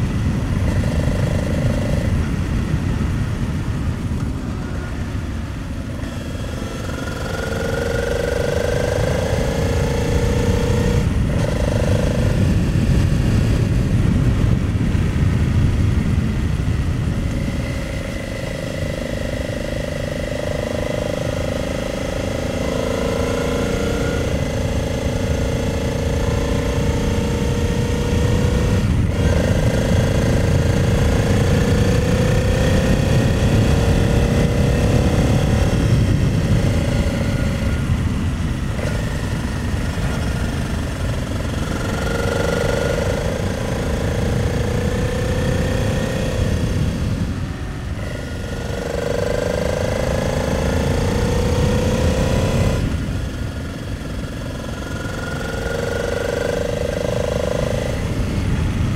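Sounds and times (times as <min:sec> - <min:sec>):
wind rushing on microphone: 0:00.0 - 0:58.9
motorcycle engine pulling: 0:16.7 - 0:58.9.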